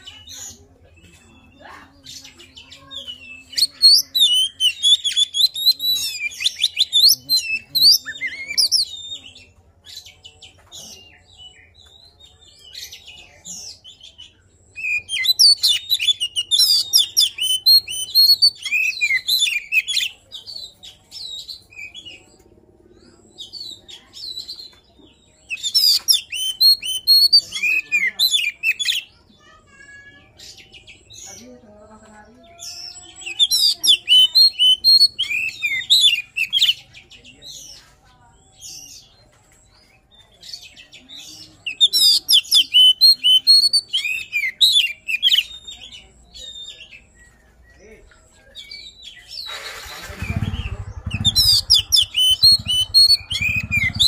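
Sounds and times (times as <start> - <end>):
bird singing whistled notes: 25.5 - 29.1, 32.6 - 37.7, 40.5 - 54.0.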